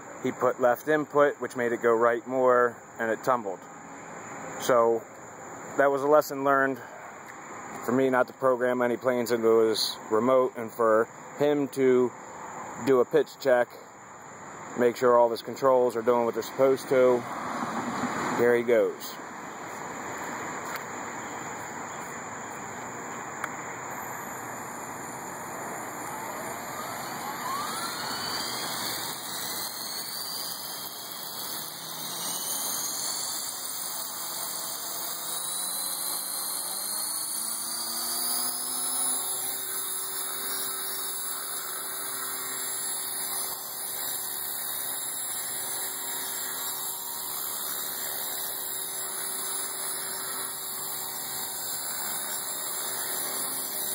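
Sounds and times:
rc helicopter rotor whine: 14.6s - 53.9s.

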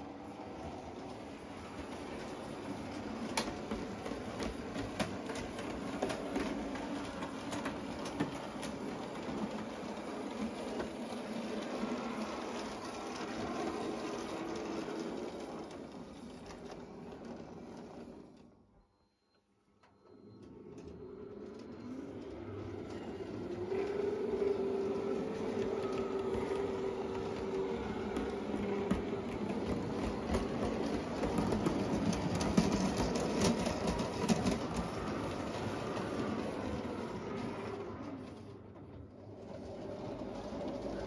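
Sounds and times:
model train wheels clicking: 1.2s - 18.0s, 22.5s - 37.5s.

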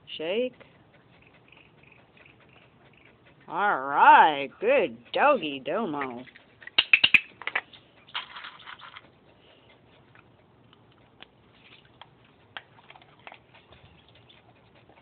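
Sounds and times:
dog crunching treats: 6.8s - 9.1s, 10.2s - 13.8s.

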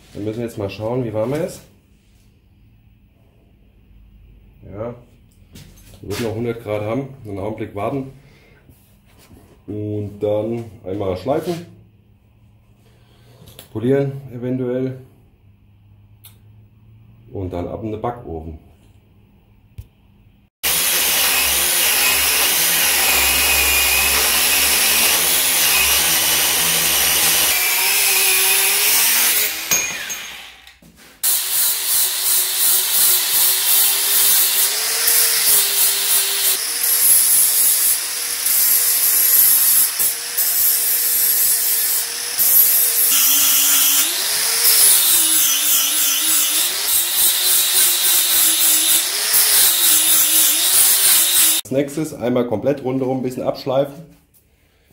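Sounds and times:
angle grinder grinding steel: 20.6s - 51.6s.

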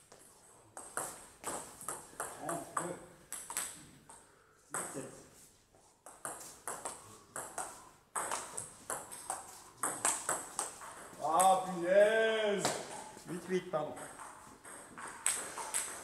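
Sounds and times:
table tennis ball clicking and bouncing: 0.8s - 4.2s, 6.0s - 11.7s, 13.9s - 16.0s.

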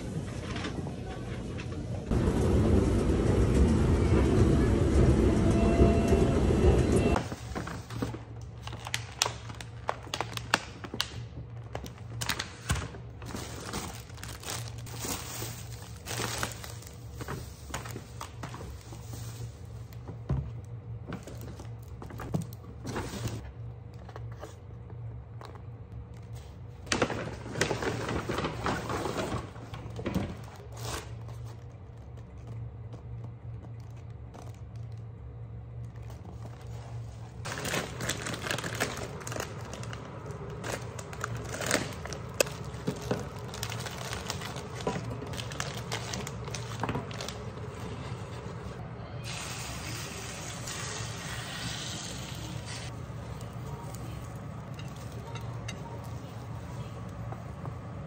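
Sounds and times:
plastic bags crinkling: 7.9s - 19.7s, 37.4s - 48.4s.

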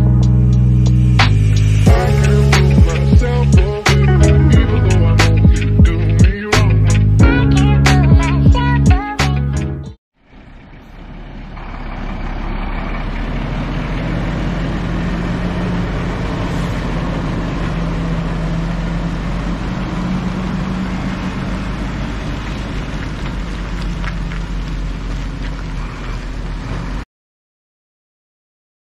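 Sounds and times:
music: 0.0s - 10.0s
truck diesel engine running: 0.0s - 27.0s.

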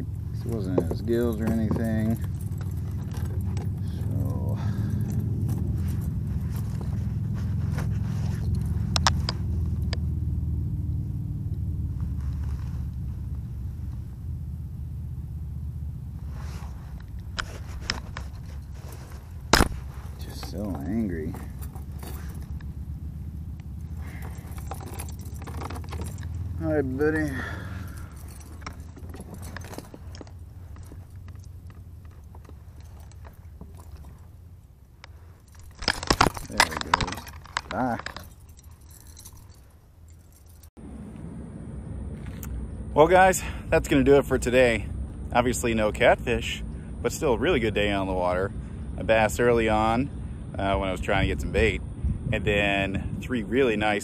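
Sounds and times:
metal clips clinking: 0.0s - 6.9s, 16.9s - 22.7s, 23.6s - 34.4s, 35.0s - 40.7s
steady low rumble: 0.0s - 54.0s
fishing gear clicking: 16.7s - 22.8s, 23.6s - 40.7s.

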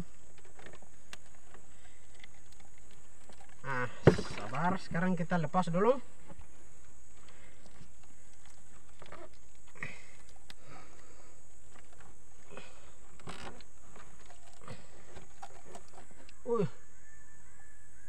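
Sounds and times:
small knocks: 0.0s - 4.8s.

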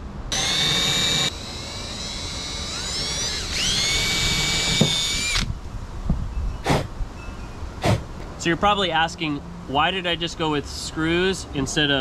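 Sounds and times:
power drill whining: 0.3s - 5.5s.

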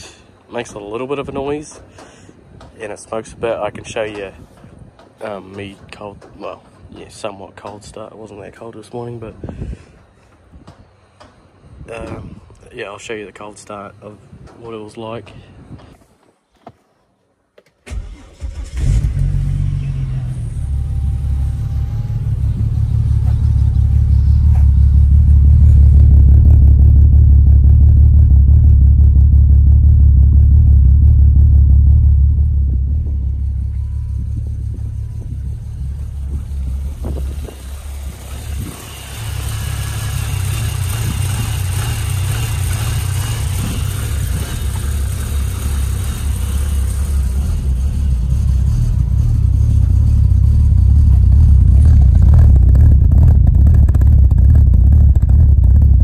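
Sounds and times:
car engine starting and idling: 17.8s - 56.0s.

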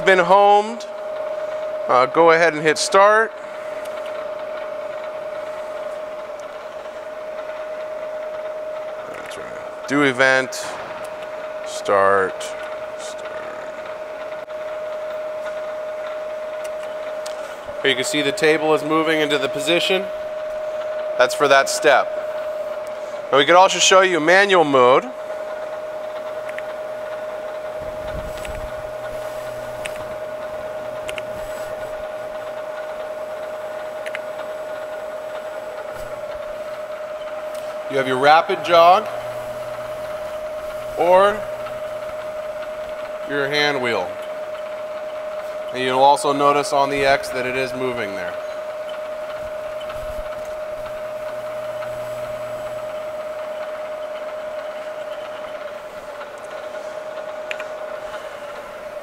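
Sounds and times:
milling machine high whine: 0.0s - 59.0s
low hum: 25.1s - 55.6s.

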